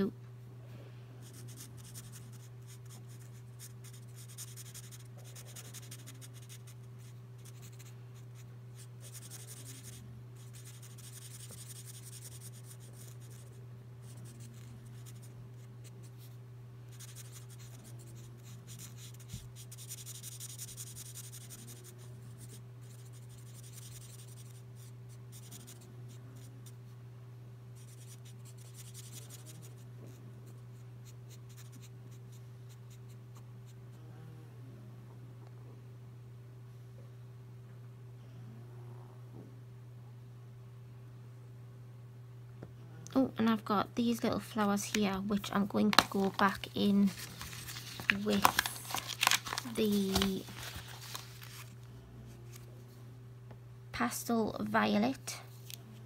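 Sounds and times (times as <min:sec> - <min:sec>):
steady low hum: 0:00.0 - 0:56.0
marker scratching across paper: 0:01.2 - 0:15.7, 0:16.9 - 0:26.5, 0:27.8 - 0:31.9.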